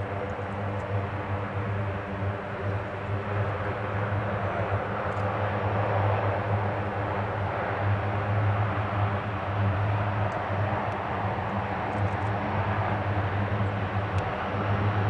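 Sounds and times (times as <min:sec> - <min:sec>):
aircraft engine rush: 0:00.0 - 0:15.0
low propeller hum: 0:00.0 - 0:15.0.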